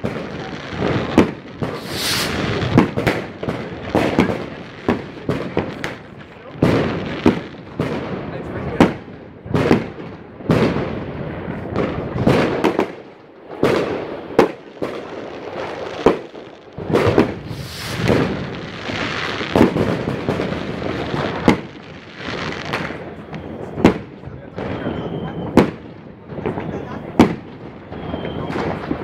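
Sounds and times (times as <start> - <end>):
fireworks hissing: 0.0 - 7.5, 13.7 - 23.8
fireworks bangs: 0.0 - 29.0.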